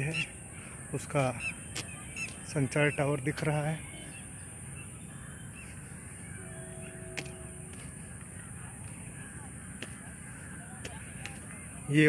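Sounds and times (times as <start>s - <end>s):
faint bird calls: 0.0s - 12.0s
two-note tone: 6.3s - 7.9s.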